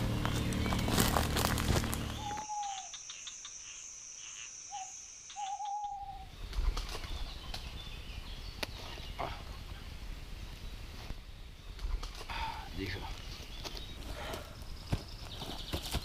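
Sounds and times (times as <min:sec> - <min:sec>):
birds calling: 0:00.0 - 0:16.0
owl hooting: 0:02.1 - 0:06.3.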